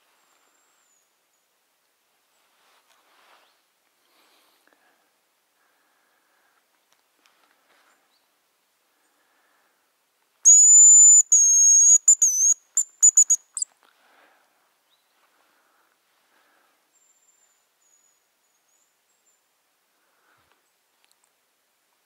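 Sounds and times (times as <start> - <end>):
decoy whistle bird call: 10.4 - 13.6
faint high thin whistle: 10.5 - 13.7.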